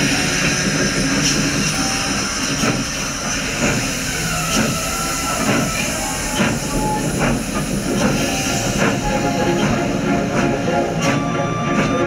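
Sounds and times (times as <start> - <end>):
steam train running: 0.0 - 12.0.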